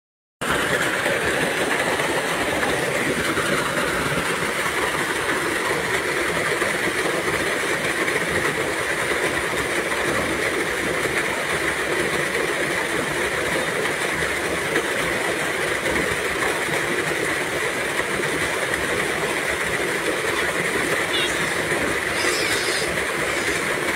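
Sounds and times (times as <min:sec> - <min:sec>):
waterfall splashing into pool: 0:00.4 - 0:23.9.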